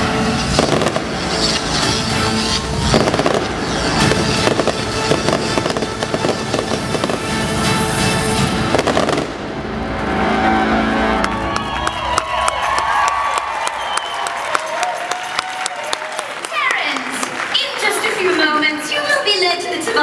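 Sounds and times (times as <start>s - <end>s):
music: 0.0s - 20.0s
fireworks pops and bangs: 0.4s - 7.4s.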